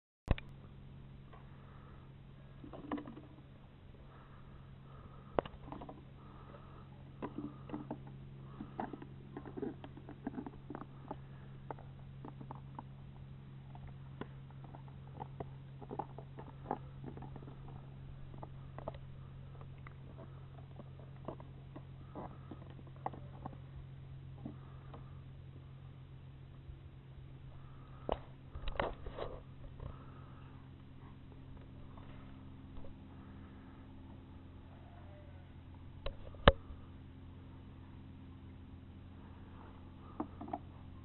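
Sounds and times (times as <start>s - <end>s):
dog chewing plastic bottle: 7.2s - 13.0s, 13.7s - 23.7s.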